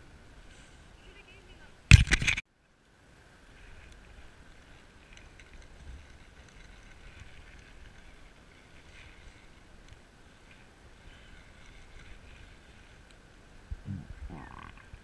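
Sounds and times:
steady outdoor hiss: 0.0 - 15.0
wind rumbling on microphone: 3.6 - 15.0
light ticks: 3.8 - 10.6.

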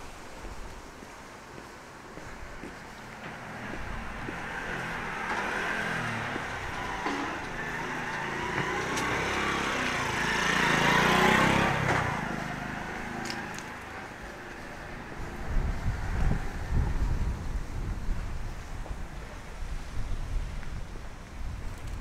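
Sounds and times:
motor vehicle driving past: 3.1 - 17.2.

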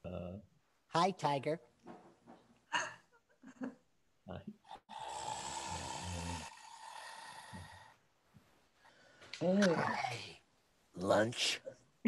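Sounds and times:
breathy vocal sounds: 4.6 - 8.0
man growling like a tiger: 4.9 - 7.9.

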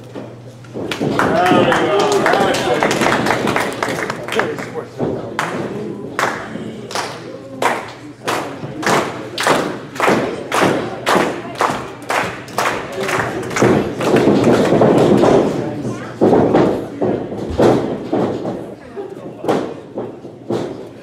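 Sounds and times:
audience clapping in unison: 0.9 - 15.6.

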